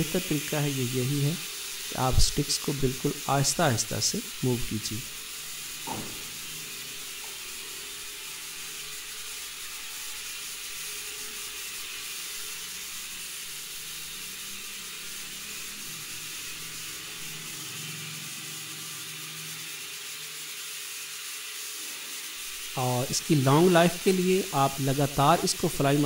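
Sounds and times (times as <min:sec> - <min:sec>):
toy drone propellers hissing: 0:00.0 - 0:26.0.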